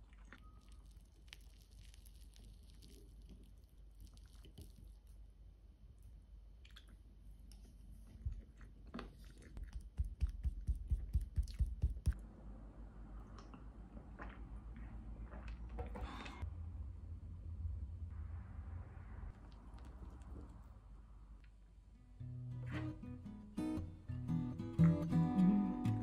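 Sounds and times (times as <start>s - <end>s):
rhythmic chewing: 6.6s - 12.2s.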